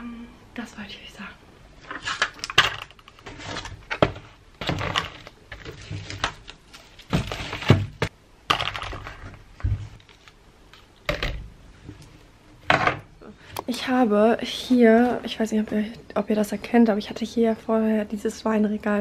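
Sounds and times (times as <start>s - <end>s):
packaging crinkling: 1.9s - 7.8s.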